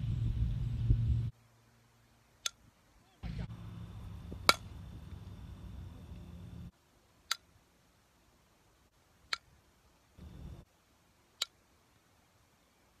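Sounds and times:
softball bat hitting ball: 0:04.2 - 0:04.8.

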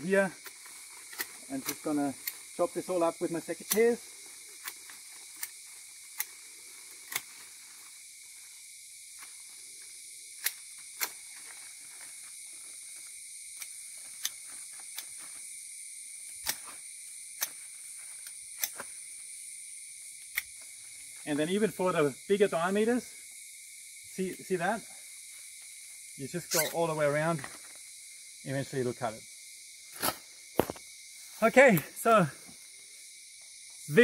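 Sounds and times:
secateurs snipping stems: 0:00.4 - 0:02.5, 0:03.6 - 0:03.9, 0:07.0 - 0:07.4.

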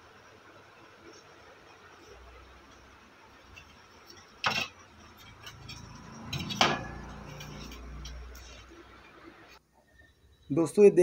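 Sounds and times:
metal clinks and knocks: 0:03.5 - 0:08.6.

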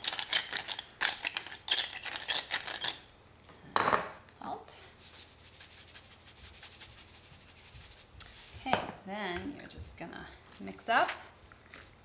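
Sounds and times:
pepper mill grinding: 0:00.0 - 0:03.1.

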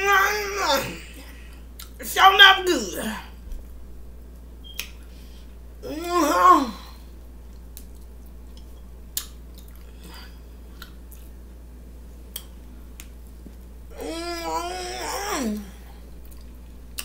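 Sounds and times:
steady low hum: 0:00.0 - 0:17.0
chewing and mouth noises: 0:01.7 - 0:02.0, 0:07.4 - 0:11.4, 0:15.5 - 0:17.0
sharp mouth smacks and clicks: 0:01.8 - 0:02.0, 0:04.6 - 0:05.0, 0:07.6 - 0:09.9, 0:12.3 - 0:13.2.

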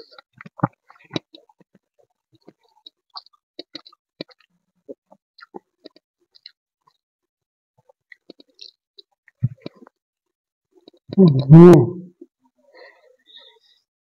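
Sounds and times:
wet chewing: 0:02.4 - 0:04.5, 0:05.4 - 0:07.0.

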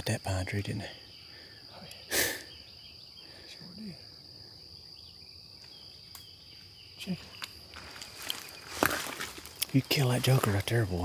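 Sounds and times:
sharp breathy burst: 0:01.2 - 0:02.5.

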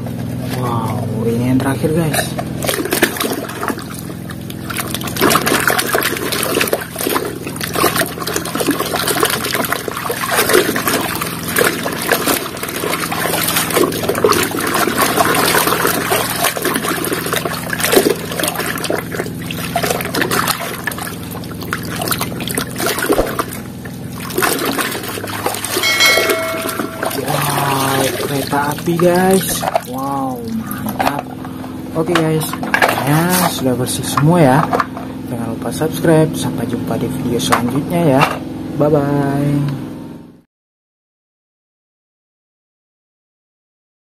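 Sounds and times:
water sloshing in basin: 0:01.5 - 0:35.1
short electronic chime: 0:25.8 - 0:27.6.

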